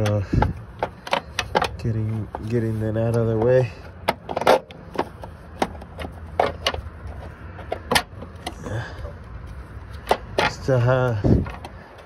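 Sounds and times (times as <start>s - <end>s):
metal parts clicking and knocking: 0.0s - 2.4s.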